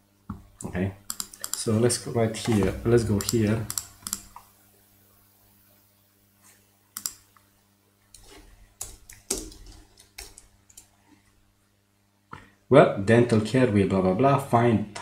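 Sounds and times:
computer keyboard typing: 1.1 - 1.7, 2.6 - 4.4, 7.0 - 7.2, 8.8 - 10.9.

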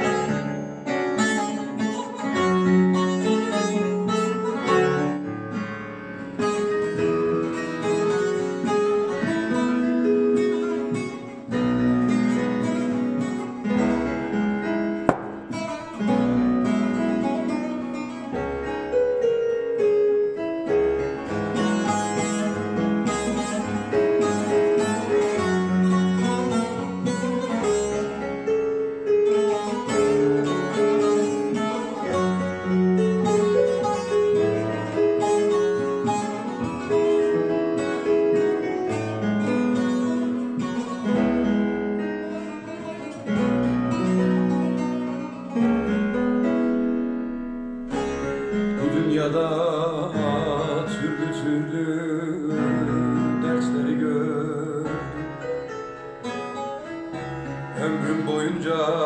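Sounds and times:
plucked long-necked lute melody: 0.0 - 59.0.

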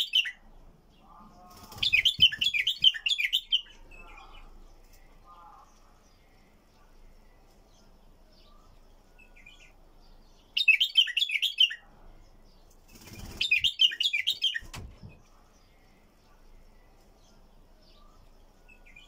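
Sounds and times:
bird chirping: 0.0 - 19.0
wings fluttering: 1.5 - 3.1, 12.8 - 13.8.

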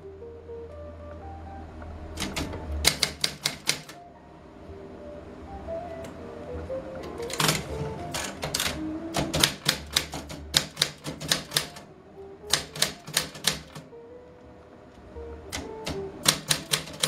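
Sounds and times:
typewriter key strikes: 2.2 - 4.0, 7.2 - 11.8, 12.5 - 13.9, 15.5 - 17.0.

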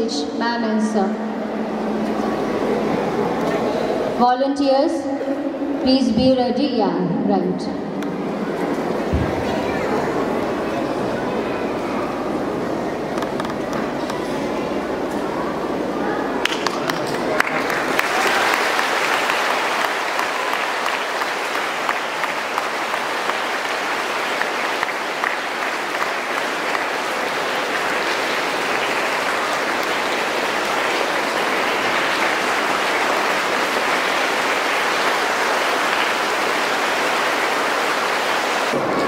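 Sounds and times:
audience applauding: 1.6 - 4.2, 8.1 - 39.0.

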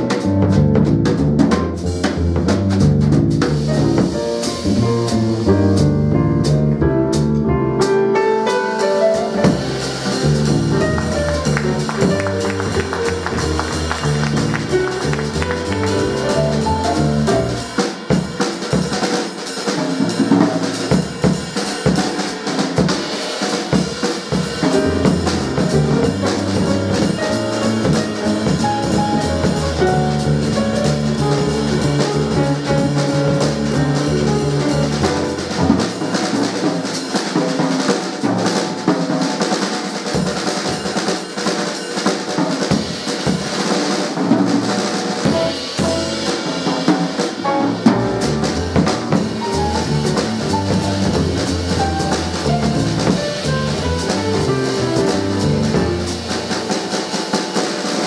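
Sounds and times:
double bass: 0.0 - 8.2, 9.1 - 17.8, 24.6 - 36.6, 45.3 - 46.7, 47.4 - 56.7
drum kit played with sticks: 0.0 - 58.0
piano: 0.0 - 58.0.

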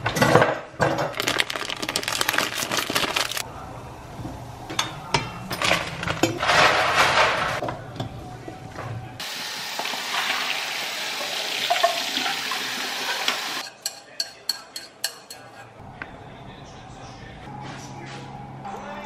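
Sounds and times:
faucet water running into sink: 9.2 - 13.6.

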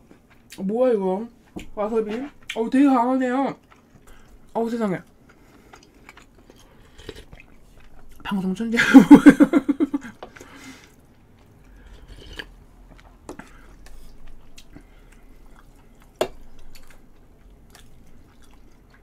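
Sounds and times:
chewing: 3.5 - 8.3, 10.1 - 19.0.

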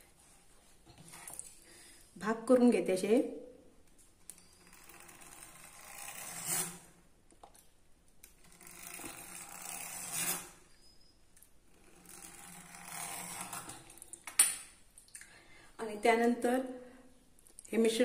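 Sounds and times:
pastry cutter rolling through dough: 4.4 - 6.9, 8.3 - 10.6, 11.7 - 13.9.

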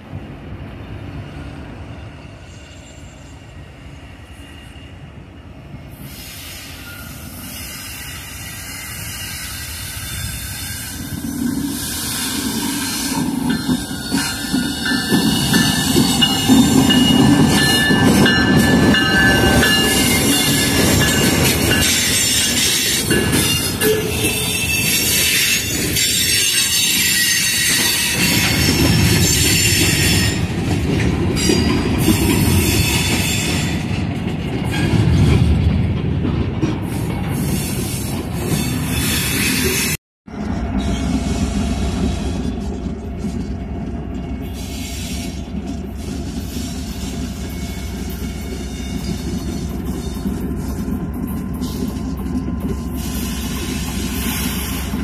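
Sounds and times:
diesel locomotives passing: 0.0 - 55.0
high-pitched wheel squeal: 21.8 - 30.4.

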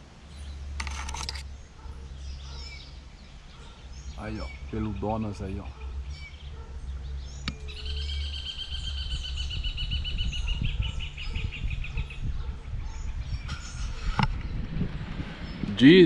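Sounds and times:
bird trilling: 1.4 - 14.2
low rumble: 6.1 - 16.0
sharp click: 7.4 - 7.7.

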